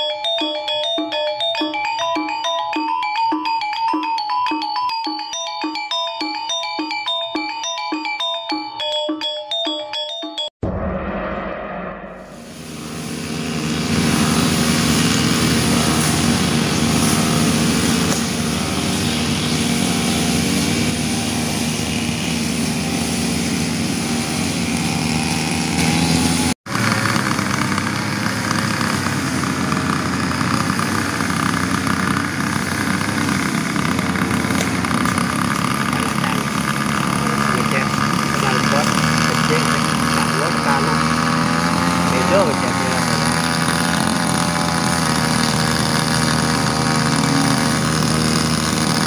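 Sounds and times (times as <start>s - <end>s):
brush cutters cutting grass: 12.8s - 49.0s.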